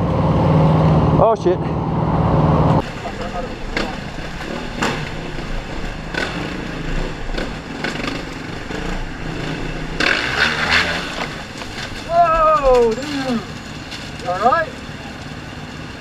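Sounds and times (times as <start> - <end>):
motorcycle engine at low revs: 0.0 - 12.0
rush of noise: 0.0 - 13.7.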